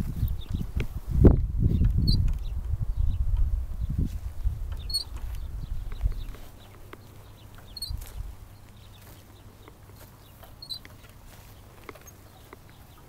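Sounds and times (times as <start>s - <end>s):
wind rumble on microphone: 0.0s - 9.1s
playground swing squeaking: 0.0s - 13.0s.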